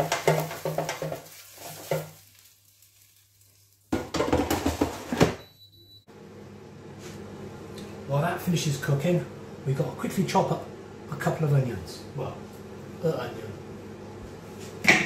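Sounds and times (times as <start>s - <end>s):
basket clattering into air fryer: 0.0s - 2.2s, 3.9s - 5.4s
food rattling in shaken basket: 4.0s - 5.1s.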